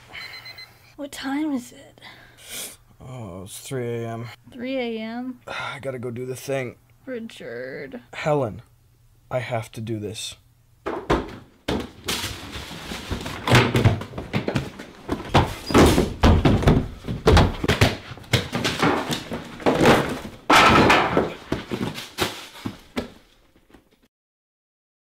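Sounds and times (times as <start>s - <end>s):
loud crashes and thuds: 15.3s - 21.9s.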